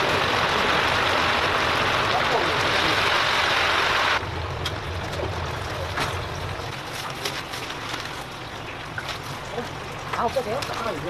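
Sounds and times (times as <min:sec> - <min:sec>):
hot oil sizzling in a fryer: 0:00.0 - 0:07.4.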